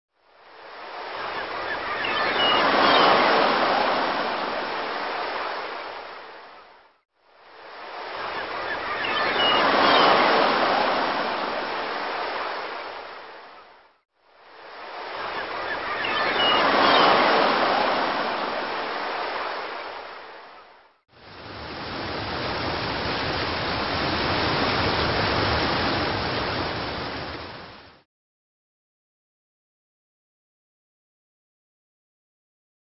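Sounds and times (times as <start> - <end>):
rushing surf-like noise: 0.6 - 6.6, 7.3 - 13.6, 14.3 - 20.6, 21.2 - 28.0.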